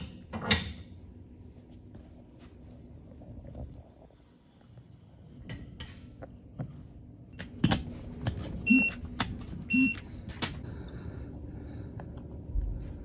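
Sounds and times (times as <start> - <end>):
short electronic beep: 9.7 - 10.0.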